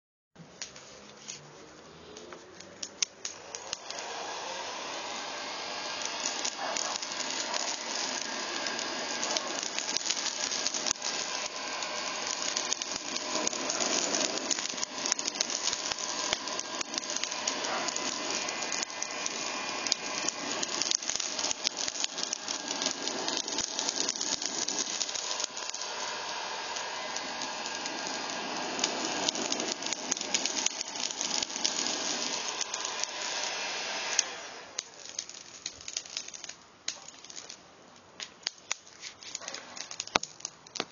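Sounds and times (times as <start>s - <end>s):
charcoal crackling and popping: 0.6s - 40.9s
heat gun fan blowing: 2.1s - 36.4s.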